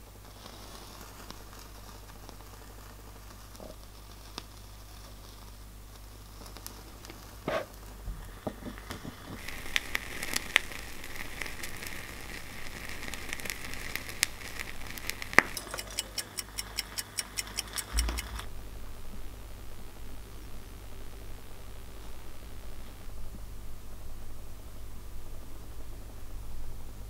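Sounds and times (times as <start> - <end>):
charcoal disc fizzing and crackling: 0.0 - 18.5
evenly spaced ticks: 13.4 - 18.5.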